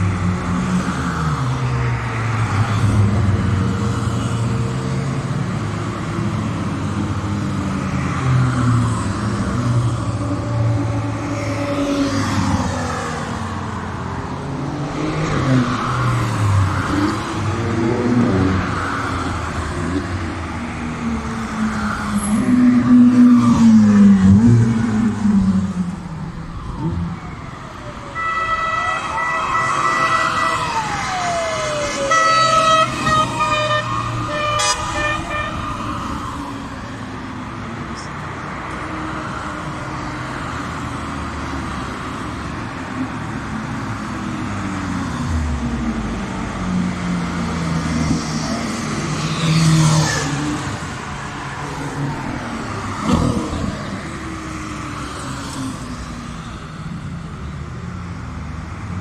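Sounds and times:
race cars revving and accelerating: 0.0 - 27.5, 29.6 - 56.9
horn sounding in stop-start tones: 28.2 - 30.6, 32.1 - 35.7.

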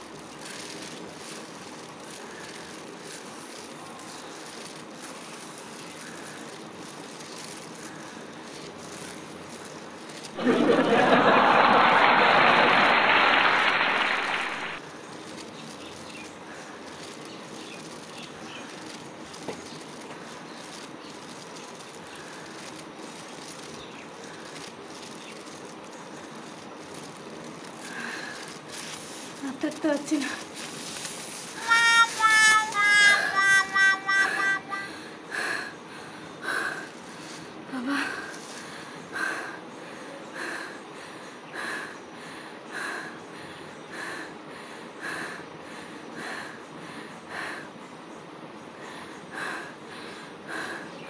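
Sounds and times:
steady background hiss: 0.0 - 51.0
woman breathing hard: 27.7 - 29.3, 34.3 - 51.0.

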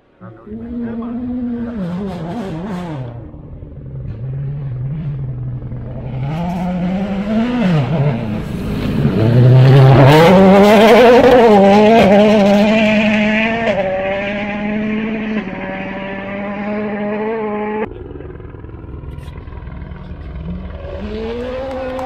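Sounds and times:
rally car engine revving: 0.2 - 17.9, 19.9 - 22.0
engine crackles: 17.8 - 22.0.

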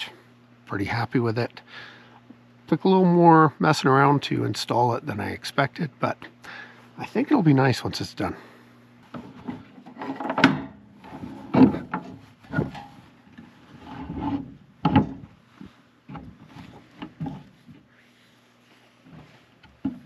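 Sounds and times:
scraping rub: 11.0 - 14.6.

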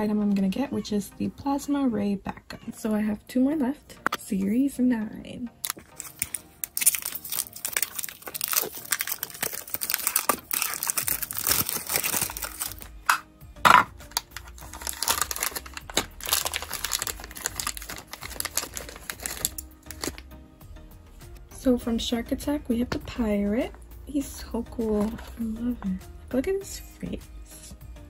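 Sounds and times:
foil bag crinkling: 5.6 - 12.9, 14.1 - 20.2
plastic wrap crinkling: 5.6 - 13.2, 14.1 - 20.3.

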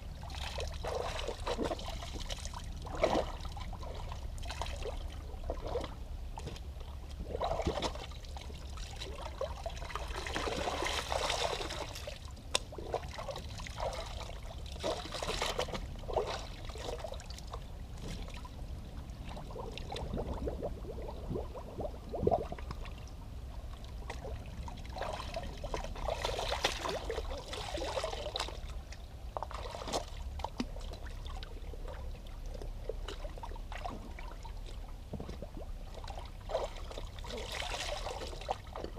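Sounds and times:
stream trickling over stones: 0.0 - 18.6, 19.2 - 38.9
shoes splashing in water: 0.4 - 6.6, 9.0 - 17.2, 24.9 - 28.7, 29.4 - 31.0.

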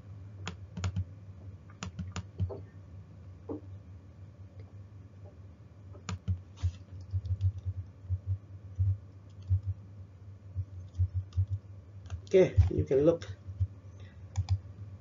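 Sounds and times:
keyboard typing: 0.4 - 1.0, 1.7 - 2.6, 6.0 - 9.8, 10.7 - 12.9, 14.3 - 14.6.

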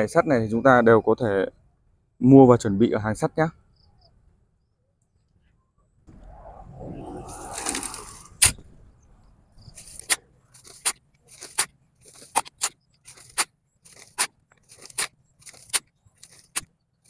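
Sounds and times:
soil scraping: 6.2 - 9.0, 9.6 - 17.0
soil rustling through mesh screen: 7.2 - 8.7, 9.6 - 17.0.

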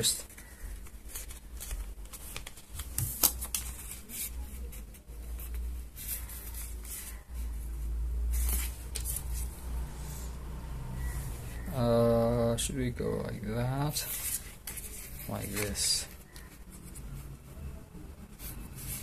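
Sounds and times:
card folding and rustling: 0.0 - 9.7, 13.4 - 17.5, 18.3 - 19.0.

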